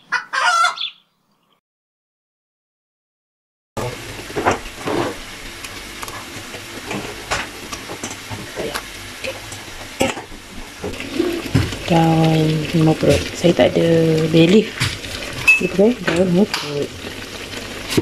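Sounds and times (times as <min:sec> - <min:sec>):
chicken sizzling in a wok: 0:03.8 - 0:18.0.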